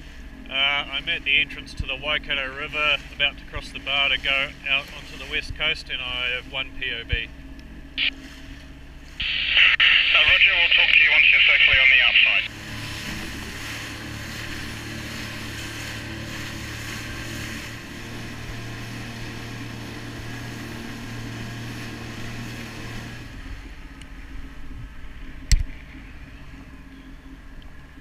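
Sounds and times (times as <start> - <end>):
jet ski engine running: 0.0 - 28.0
water and wind rushing: 0.0 - 28.0.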